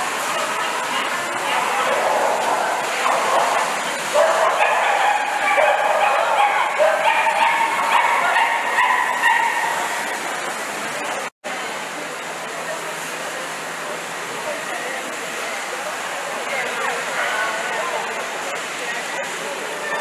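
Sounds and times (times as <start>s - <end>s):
dogs barking and yipping: 0.5s - 10.3s.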